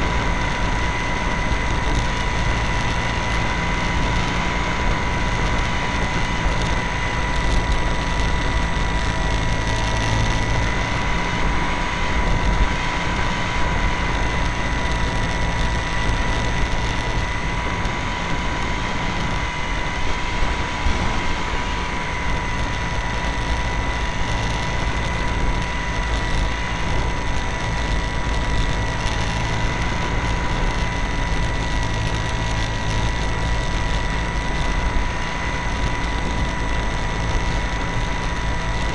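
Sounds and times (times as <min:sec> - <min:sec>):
plane engine whine: 0:00.0 - 0:38.9.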